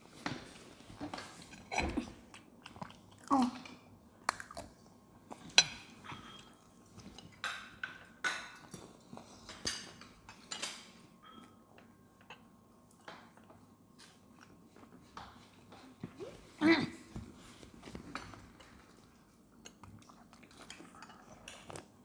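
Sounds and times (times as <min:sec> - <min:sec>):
children chewing fried food: 0:01.0 - 0:07.4, 0:17.6 - 0:22.0.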